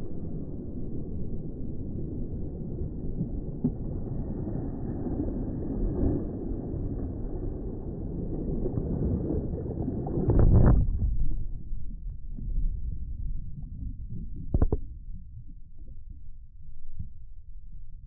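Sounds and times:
low underwater rumble: 0:00.0 - 0:18.0
underwater knocks: 0:10.2 - 0:15.5.

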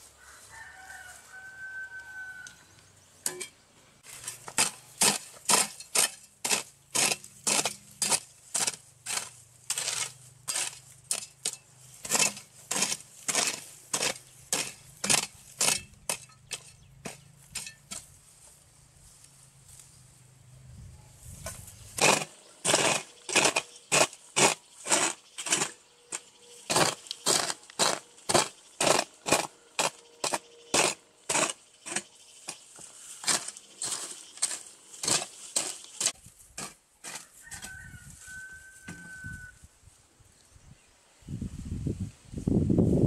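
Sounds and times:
hand tool strokes: 0:03.3 - 0:18.6, 0:21.2 - 0:39.2.

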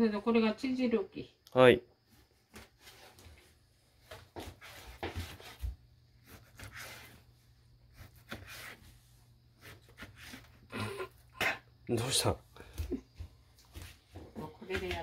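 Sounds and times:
knife cutting on cutting board: 0:04.4 - 0:07.2, 0:07.9 - 0:08.9, 0:09.6 - 0:10.6.

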